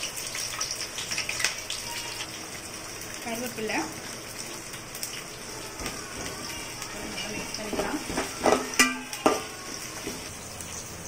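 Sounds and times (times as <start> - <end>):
onions sizzling in hot oil: 0.0 - 11.0
spoon knocking on pot rim: 7.7 - 9.5.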